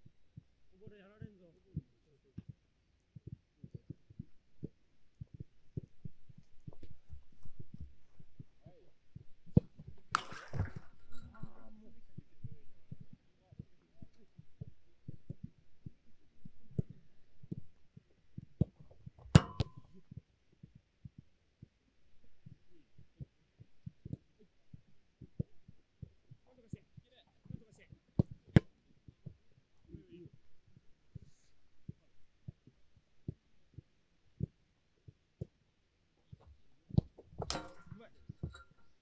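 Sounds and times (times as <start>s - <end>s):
ball clanging on metal goal frame: 10.1s - 11.4s, 19.4s - 19.9s, 37.4s - 39.0s.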